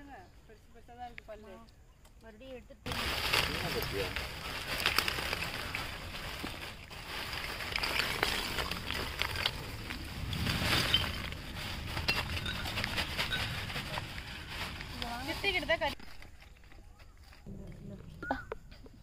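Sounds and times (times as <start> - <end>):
charcoal pouring from sack: 2.9 - 16.0
charcoal lumps clattering: 2.9 - 16.4.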